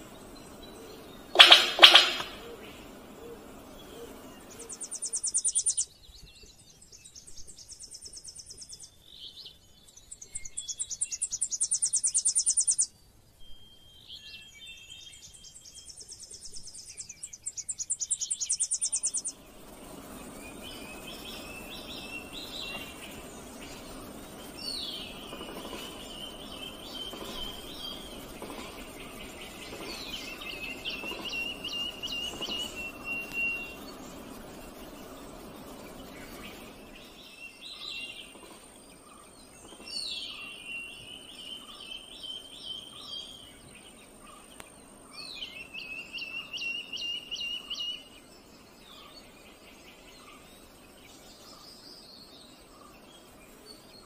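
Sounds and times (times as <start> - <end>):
whistled bird calls: 0.0 - 5.9, 10.2 - 15.9, 16.9 - 19.4, 20.2 - 34.3, 45.4 - 48.2
forest ambience: 0.0 - 54.0.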